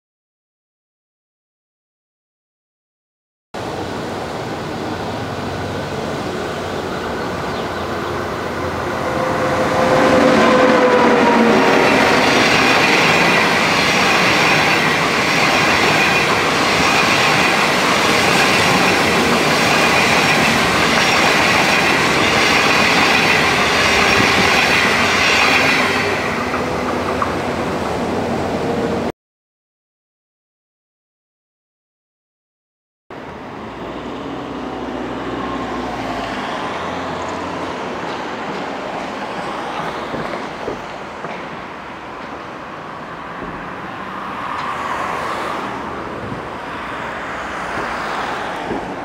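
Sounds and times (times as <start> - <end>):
wheels rumbling on rail: 3.6 - 29.1, 33.2 - 49.0.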